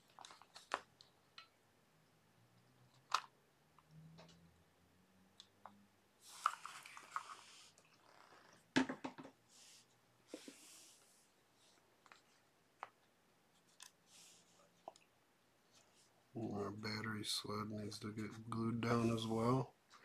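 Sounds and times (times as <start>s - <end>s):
plastic box knocking down: 8.7s - 9.4s.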